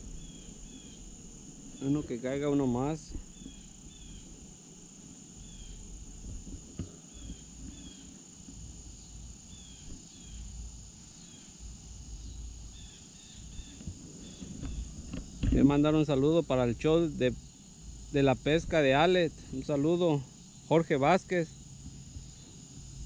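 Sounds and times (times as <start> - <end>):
low rumble: 0.0 - 7.9
crickets trilling: 0.0 - 23.0.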